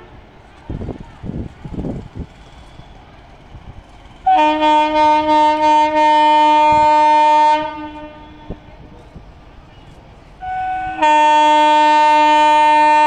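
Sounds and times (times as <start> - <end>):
locomotive horn blasts: 4.2 - 8.7, 10.4 - 13.0.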